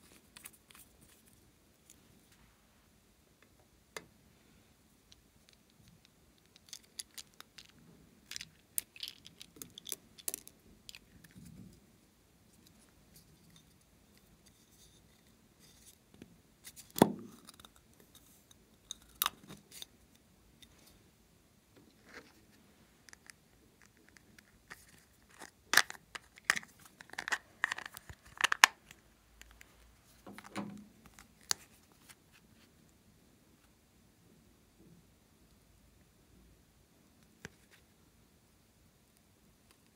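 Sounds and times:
plastic lids clicking and scraping: 23.1s - 29.6s, 30.3s - 31.7s.

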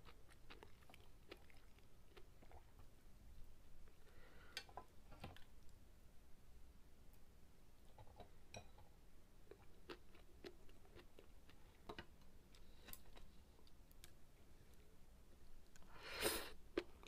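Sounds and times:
soft chewing: 0.0s - 3.0s, 7.9s - 17.0s.

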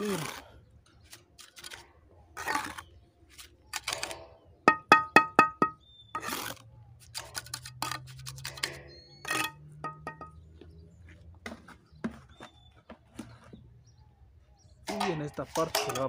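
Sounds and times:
concrete rubble knocking and scraping: 3.8s - 6.6s, 7.2s - 10.5s
sharp ringing taps: 4.7s - 5.8s, 9.4s - 10.4s.

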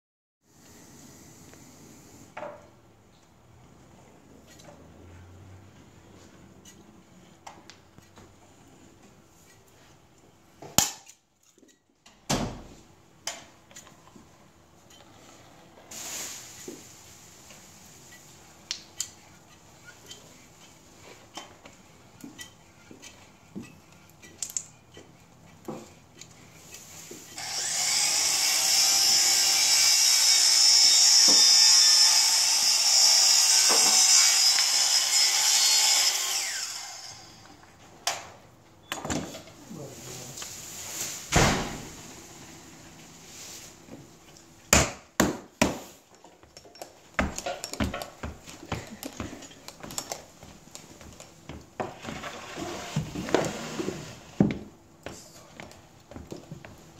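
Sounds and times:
loud steady hiss: 15.9s - 18.2s.

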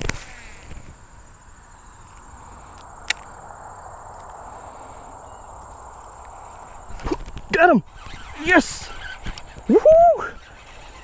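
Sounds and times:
thin high whine: 1.7s - 11.0s
fishing reel winding: 7.9s - 11.0s.

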